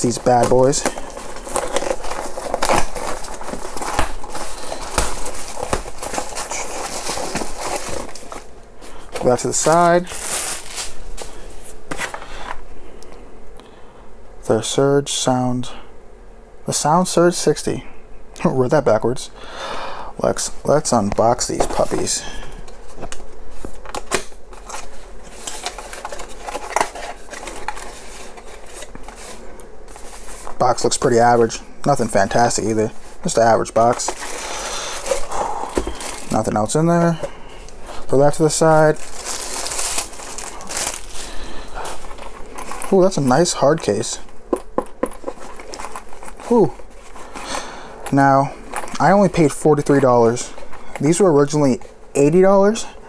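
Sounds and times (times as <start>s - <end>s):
cardboard rustling and scraping: 0.0s - 12.6s, 21.2s - 51.2s
cardboard box being torn open: 0.3s - 8.5s, 38.9s - 41.2s.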